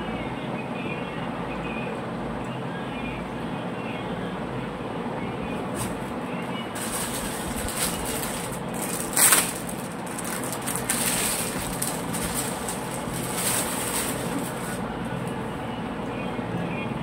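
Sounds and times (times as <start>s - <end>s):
steady background noise: 0.0s - 17.0s
plastic packaging crinkling: 6.7s - 14.8s.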